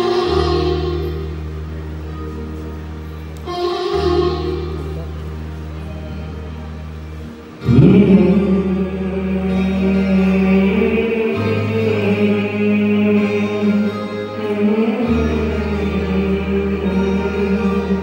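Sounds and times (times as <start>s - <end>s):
backing music track: 0.0s - 18.0s
man singing through microphone: 7.6s - 18.0s.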